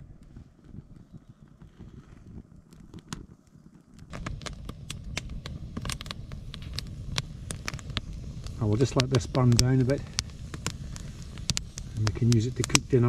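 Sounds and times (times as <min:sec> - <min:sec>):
campfire crackling: 0:00.0 - 0:13.0
low rumble: 0:04.1 - 0:13.0.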